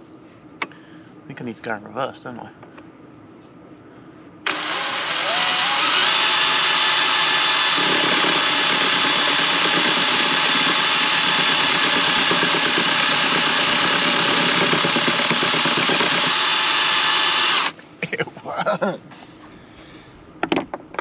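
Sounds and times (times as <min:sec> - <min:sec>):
cordless drill whining: 0:04.4 - 0:17.8
chisel scraping spinning wood: 0:04.5 - 0:17.8.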